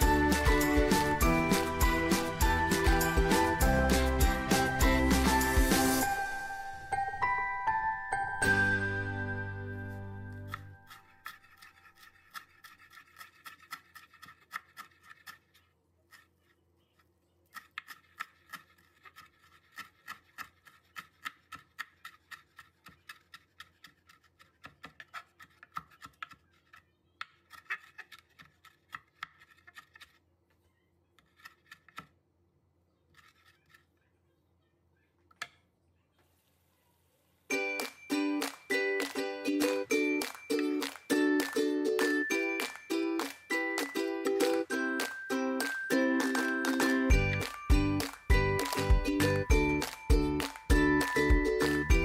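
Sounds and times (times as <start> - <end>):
knife chopping herbs on wood: 17.5 - 30.0.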